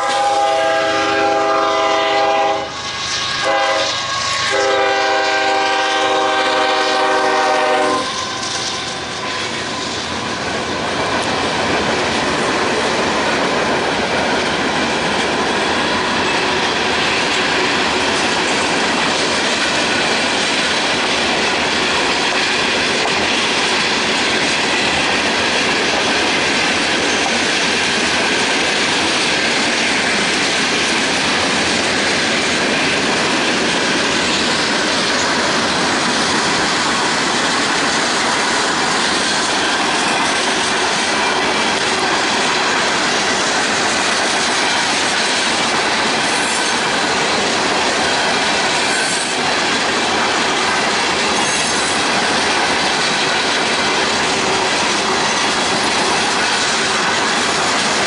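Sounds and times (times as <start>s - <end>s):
train air horn chord: 0.0s - 8.2s
freight train cars clattering past: 0.0s - 58.0s.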